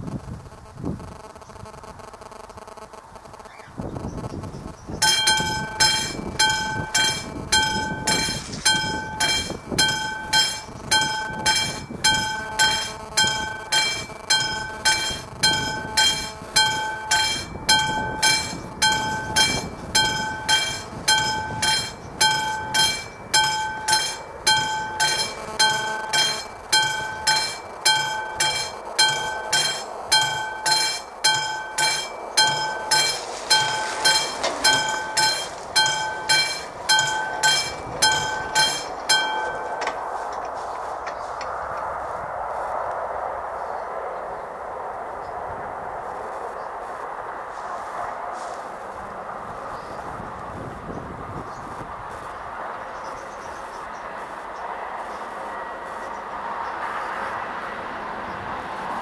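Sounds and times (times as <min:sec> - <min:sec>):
electric warning bell ringing: 0:05.0 - 0:41.6.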